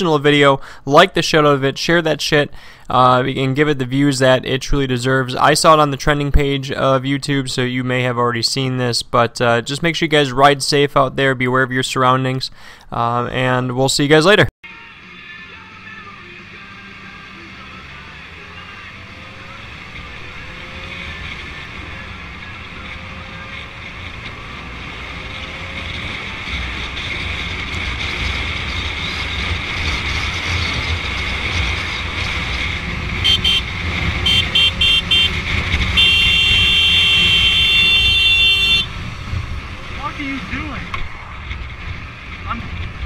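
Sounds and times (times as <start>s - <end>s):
motorcycle engine: 14.7s - 43.0s
motorcycle horn beeping: 33.2s - 39.0s.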